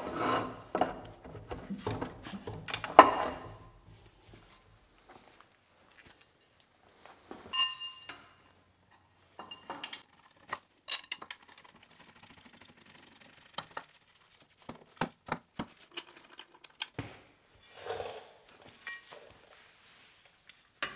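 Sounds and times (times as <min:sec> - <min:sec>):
steel clinking and knocking: 0:00.7 - 0:04.0, 0:09.4 - 0:10.0
ringing metallic clink: 0:07.6 - 0:08.4.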